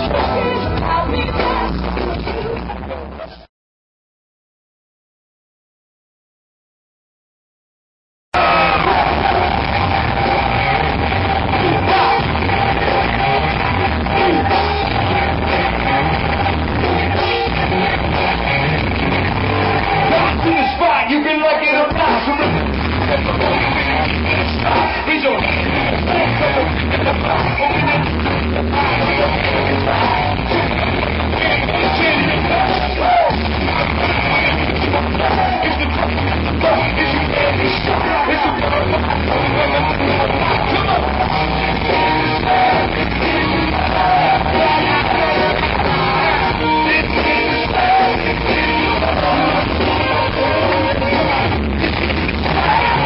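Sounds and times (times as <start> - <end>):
person singing: 0.0 - 3.4, 8.4 - 53.0
live rock band music: 0.0 - 3.5, 8.4 - 53.0
pulsing bass beat: 8.4 - 20.6.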